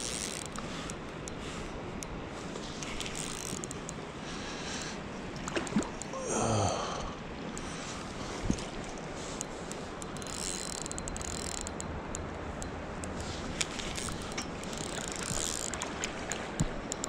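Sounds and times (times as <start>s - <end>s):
fishing reel clicking and whirring: 0.0s - 2.2s, 2.8s - 5.0s, 9.4s - 17.0s.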